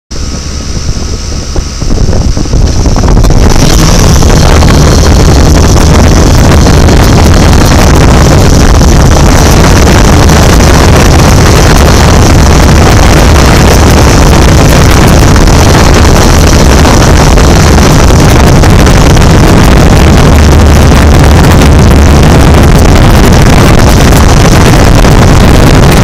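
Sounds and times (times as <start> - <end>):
drone propellers buzzing: 0.1 - 26.0
wind rushing over microphone: 0.1 - 26.0.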